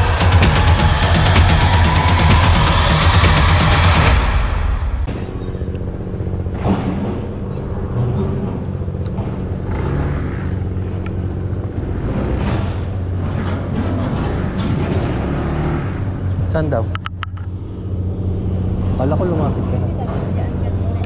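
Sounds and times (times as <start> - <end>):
scooter engine running low: 0.0 - 14.4.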